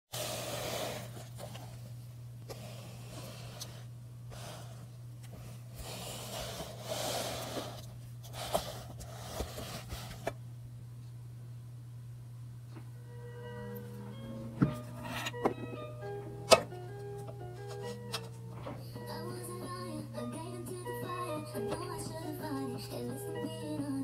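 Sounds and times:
steady low hum: 0.2 - 24.0
person breathing close to microphone: 2.5 - 10.2.

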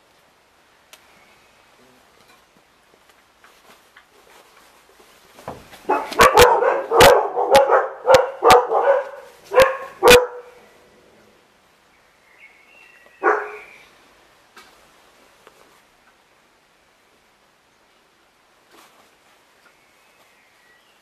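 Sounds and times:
puppies yapping barks: 5.9 - 10.6, 13.2 - 13.7.

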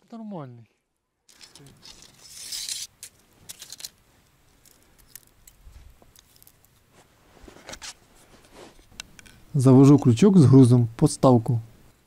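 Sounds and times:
fishing tackle clicks and rustles: 1.3 - 6.9.

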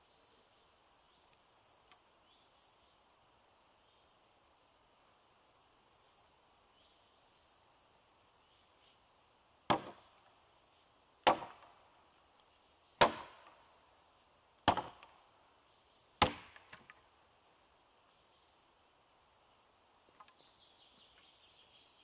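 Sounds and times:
axe chopping wood: 9.7 - 10.0, 11.2 - 11.8, 13.0 - 13.6, 14.6 - 15.1, 16.2 - 17.0.

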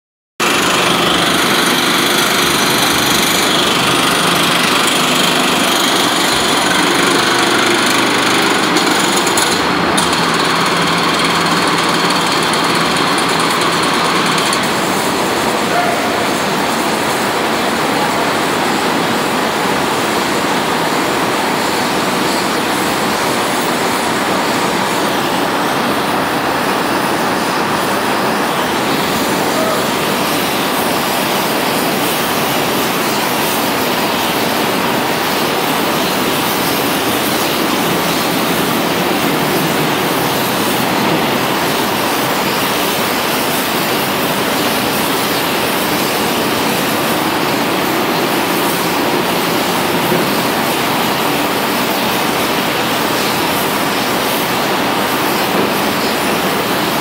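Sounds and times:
tap hole machine working: 0.4 - 17.4, 28.0 - 57.0
loud rushing of blast furnace: 0.4 - 21.8.

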